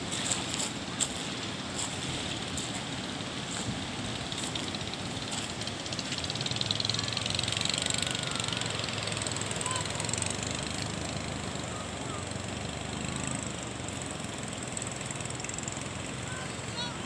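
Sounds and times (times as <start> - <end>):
sea: 0.0 - 17.0
wind: 0.0 - 17.0
footsteps crunching on pebbles: 0.1 - 5.6.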